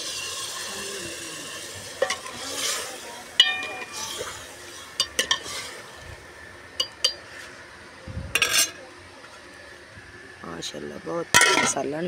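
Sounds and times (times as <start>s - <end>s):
metal spoon clinking on pot: 3.4s - 4.0s.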